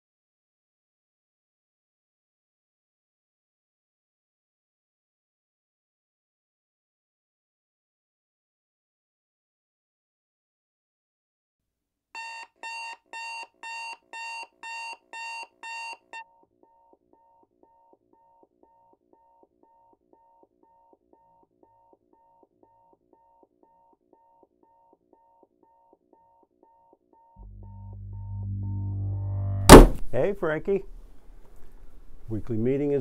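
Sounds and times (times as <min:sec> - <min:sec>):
alarm clock beeping: 0:12.2 - 0:16.3.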